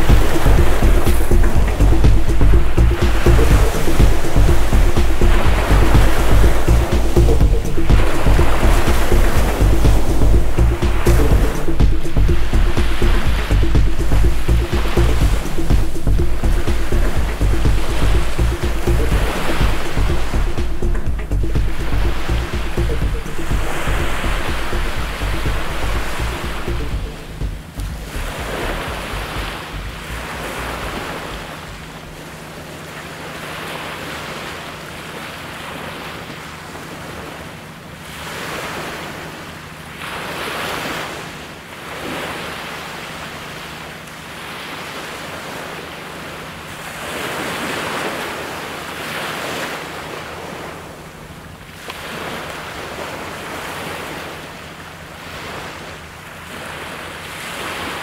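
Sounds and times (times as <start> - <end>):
waves washing on gravel beach: 27.6 - 58.0.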